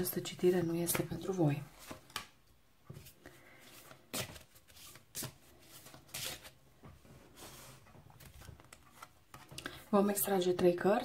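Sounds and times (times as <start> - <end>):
cards being shuffled: 0.9 - 6.6.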